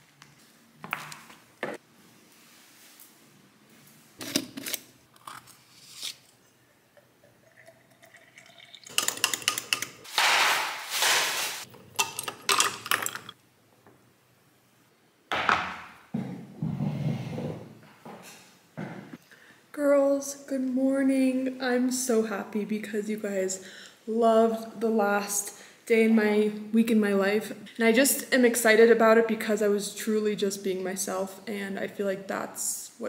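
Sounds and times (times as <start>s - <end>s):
spoon clinking against glass: 12.0s - 13.3s.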